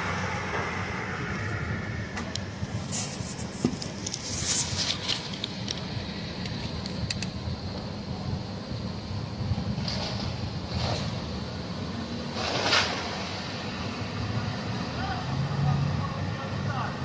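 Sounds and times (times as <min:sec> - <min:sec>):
idling vehicle engines: 0:00.0 - 0:17.0
fire crackling and popping: 0:02.2 - 0:11.7, 0:12.3 - 0:13.5.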